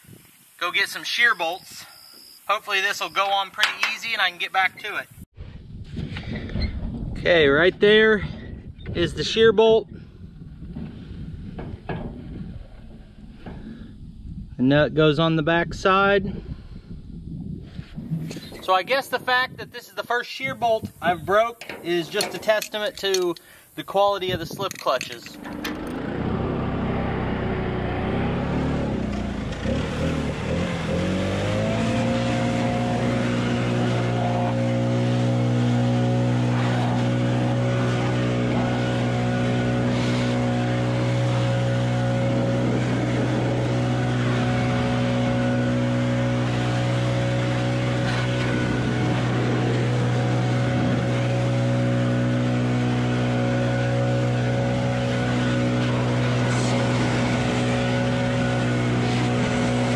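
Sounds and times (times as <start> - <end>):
leaf blower whining: 25.2 - 59.9.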